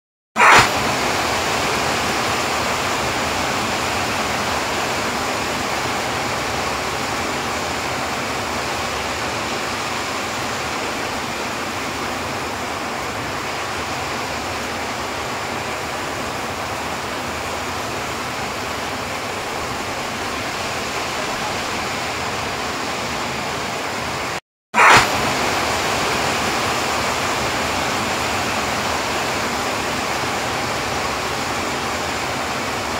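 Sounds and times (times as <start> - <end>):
heavy rain on paved road: 0.4 - 32.9.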